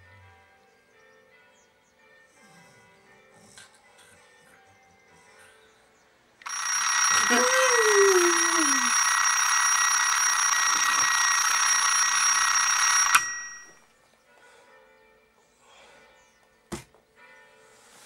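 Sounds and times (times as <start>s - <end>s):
alarm clock ringing: 6.4s - 13.9s
alarm clock switch click: 10.6s - 13.8s.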